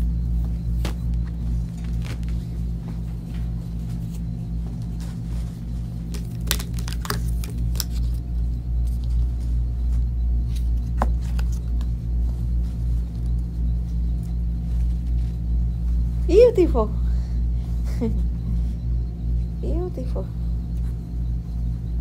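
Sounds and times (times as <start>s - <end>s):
steady low hum: 0.0s - 22.0s
clothing fabric rustling: 0.3s - 7.0s.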